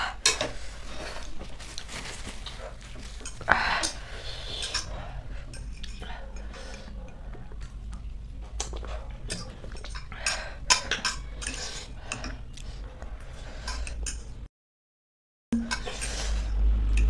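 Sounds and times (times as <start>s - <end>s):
forks clinking on plates: 9.3s - 12.4s.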